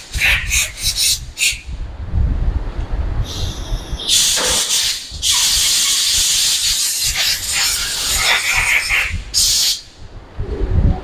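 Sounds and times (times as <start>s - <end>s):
compressed-air spray gun hissing: 4.1s - 9.8s.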